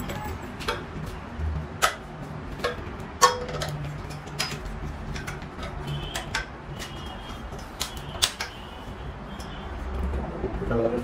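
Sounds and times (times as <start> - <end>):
metal bed frame clinks and taps: 1.8 - 8.5.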